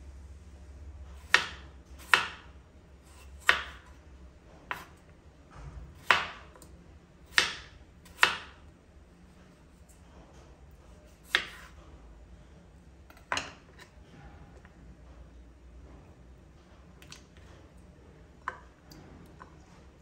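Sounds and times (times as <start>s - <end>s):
knife slicing potato: 1.2s - 4.0s, 4.6s - 5.0s, 6.0s - 6.6s, 7.2s - 8.6s, 11.0s - 11.8s.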